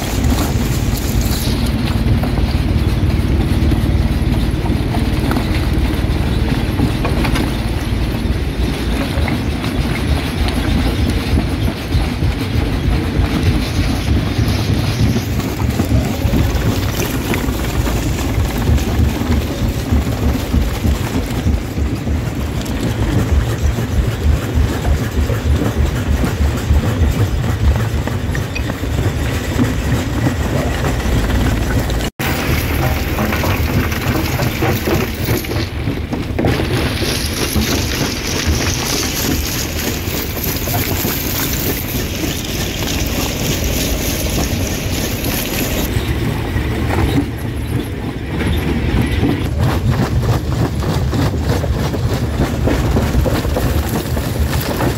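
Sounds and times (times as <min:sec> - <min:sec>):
rock crusher crushing stone: 0:00.0 - 0:08.1, 0:13.0 - 0:45.9, 0:49.3 - 0:54.9.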